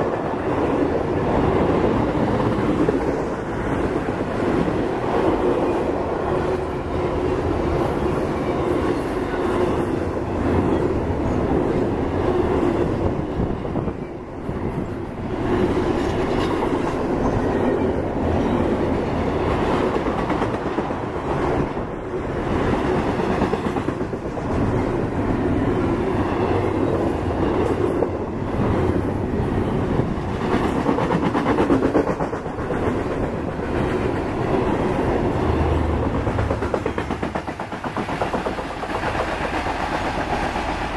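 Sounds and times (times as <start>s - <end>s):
freight train rolling by: 0.0s - 40.9s
wheels clacking over track: 35.6s - 40.9s.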